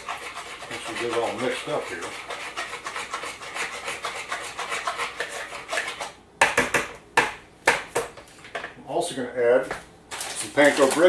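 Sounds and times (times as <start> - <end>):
batter whisked in plastic bowl: 0.0 - 6.2, 10.4 - 11.0.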